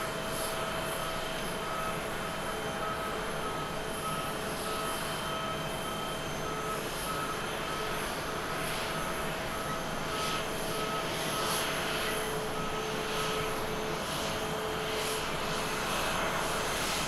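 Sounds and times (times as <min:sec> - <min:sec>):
jet engines rushing and whining: 0:00.0 - 0:17.0
faint high beep: 0:00.9 - 0:08.5.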